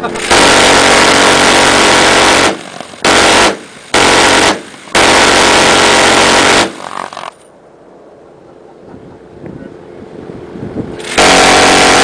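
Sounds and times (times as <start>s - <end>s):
minigun firing bursts: 0.2s - 7.3s, 11.0s - 12.0s.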